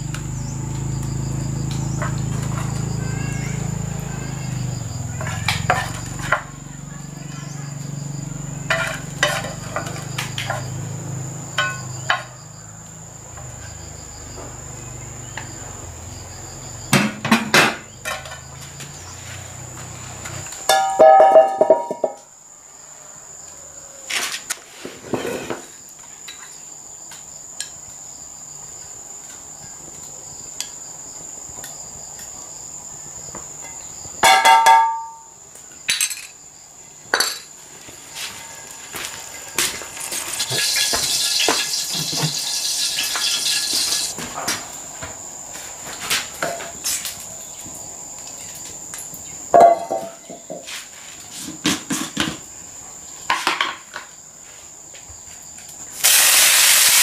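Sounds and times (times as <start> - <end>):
high insect drone: 0.0 - 57.0
cookware clanking on iron grate: 8.7 - 10.6, 17.0 - 18.5, 20.7 - 22.2, 34.2 - 35.2.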